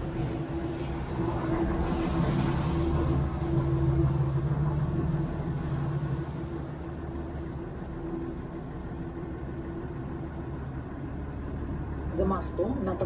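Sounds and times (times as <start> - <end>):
boat engine humming: 0.0 - 13.0.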